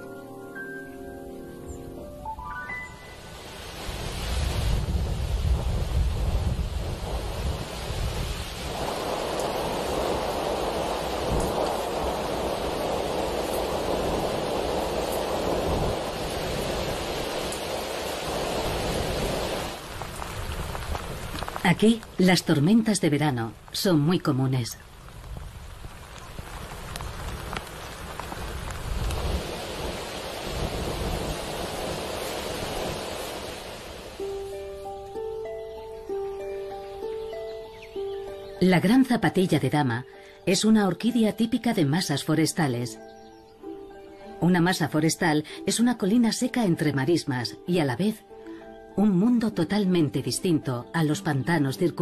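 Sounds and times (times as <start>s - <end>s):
rushing wind and rain: 0.0s - 52.0s
wind gusts rumbling on microphone: 3.0s - 38.6s.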